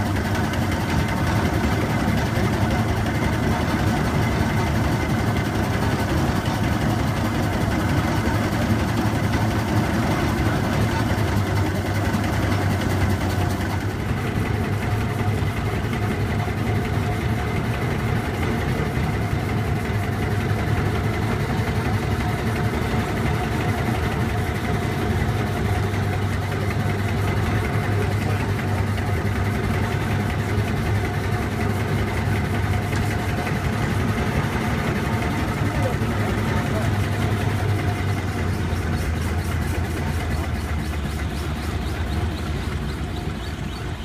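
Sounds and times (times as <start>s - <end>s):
faint steady tones: 0.0s - 44.0s
steam engine mechanical hum: 0.0s - 44.0s.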